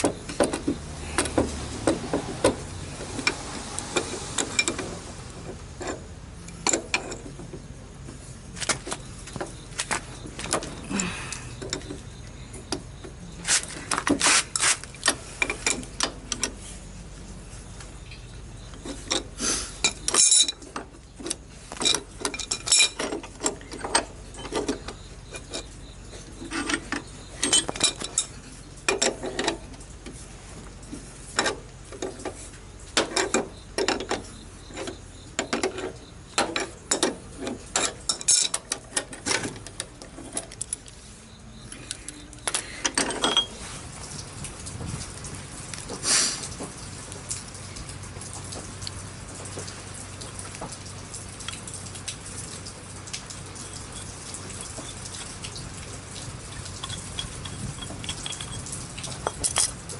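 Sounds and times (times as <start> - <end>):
metal wrench clinking and scraping: 3.1 - 7.6, 13.5 - 16.7, 18.0 - 43.8, 56.6 - 59.9.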